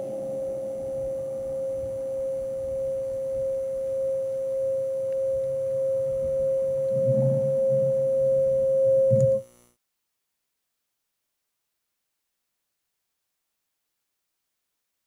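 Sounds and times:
steady mid-pitched tone: 0.0 - 9.8.

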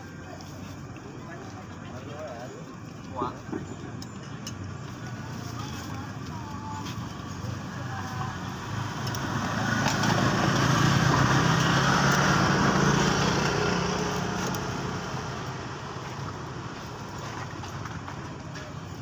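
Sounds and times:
motorcycle passing by: 7.4 - 17.6.

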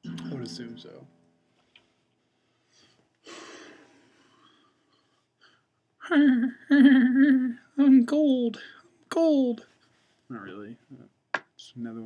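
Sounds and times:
man making wavering wordless sounds: 0.0 - 1.0.

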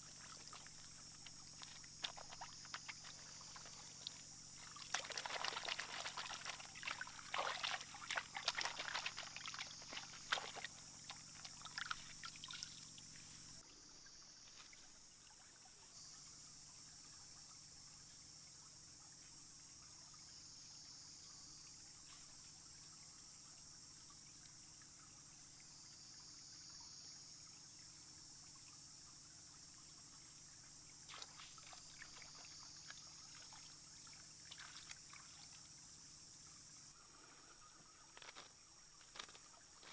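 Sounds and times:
hands splashing in water: 0.0 - 12.7, 31.1 - 32.4
stream trickling: 0.0 - 39.9.

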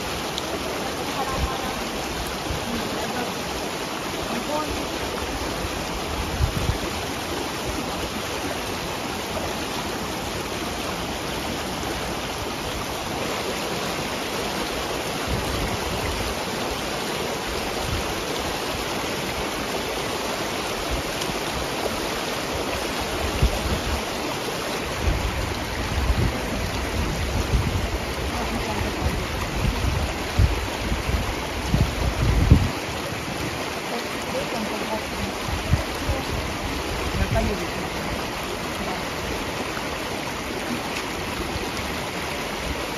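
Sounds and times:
river rushing over stones: 0.0 - 42.9
wind buffeting microphone: 5.2 - 7.8, 23.1 - 24.2, 24.8 - 33.7, 35.2 - 38.4.

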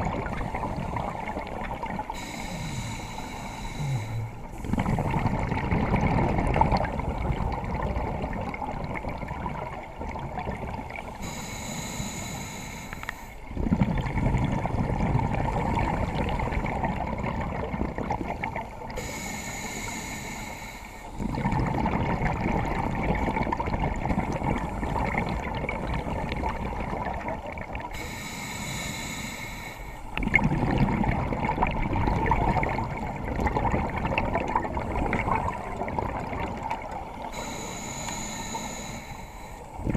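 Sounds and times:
bubbling underwater exhales: 0.0 - 11.6, 13.5 - 20.0, 21.2 - 28.6, 30.1 - 39.9
hissing regulator inhales: 2.1 - 4.9, 11.1 - 13.5, 19.0 - 21.2, 27.9 - 30.1, 37.2 - 39.8.

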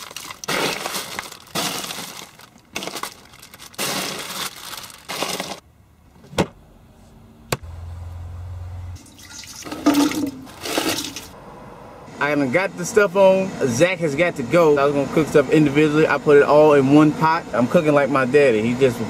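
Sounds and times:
ice shifting in cooler: 0.0 - 5.6, 9.0 - 11.4
plastic bag crinkling: 0.0 - 5.6
water splashing into metal pot: 9.0 - 11.3.

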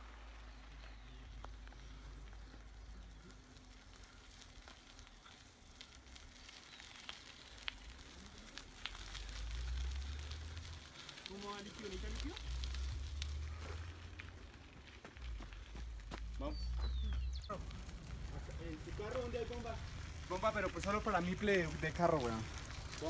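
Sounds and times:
bicycle tyres on gravel: 0.0 - 23.0
low steady rumble: 7.7 - 23.0.

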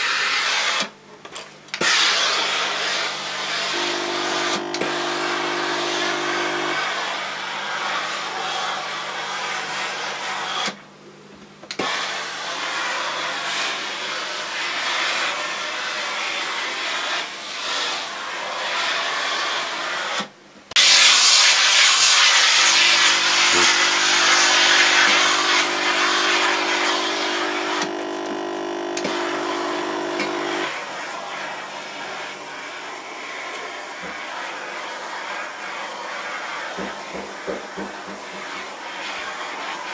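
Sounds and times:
steam hissing from iron: 20.8 - 39.9.

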